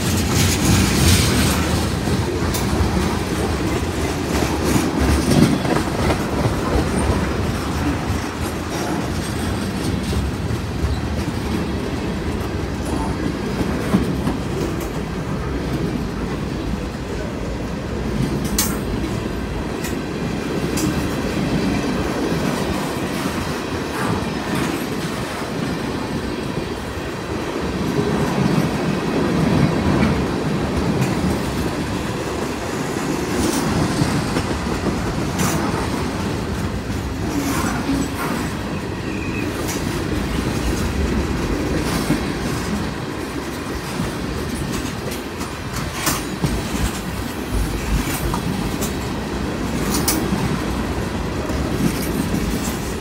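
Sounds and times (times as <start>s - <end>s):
wheels clicking over rail joints: 0.0s - 16.6s, 27.8s - 53.0s
train wheels rumbling on rail: 0.0s - 53.0s.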